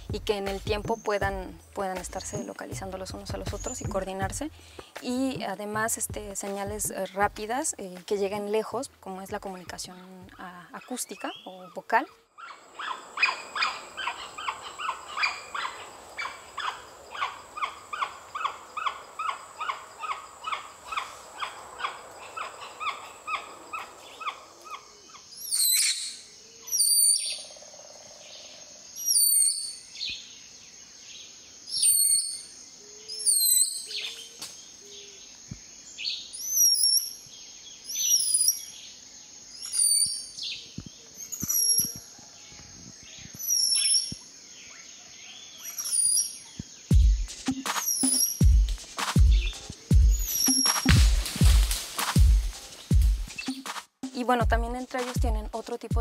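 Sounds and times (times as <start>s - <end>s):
spider monkeys calling: 10.7s - 29.8s, 31.7s - 35.2s, 39.6s - 42.1s, 43.2s - 44.3s, 45.0s - 53.7s
insect drone: 12.4s - 53.5s
monkey squeals: 47.7s - 48.5s, 50.1s - 50.9s.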